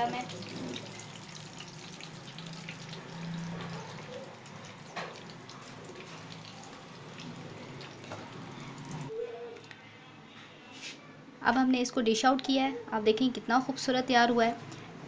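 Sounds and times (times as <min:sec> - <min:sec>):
oil sizzling in frying pan: 0:00.0 - 0:09.1.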